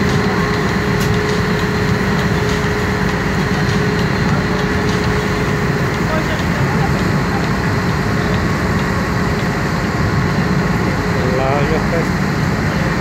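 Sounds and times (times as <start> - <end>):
ferry engine droning: 0.0 - 13.0
propeller wash rushing: 0.0 - 13.0.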